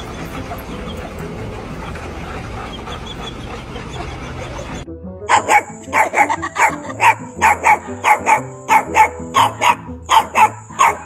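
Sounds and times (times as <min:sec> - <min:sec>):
puppy yapping: 0:02.6 - 0:11.0.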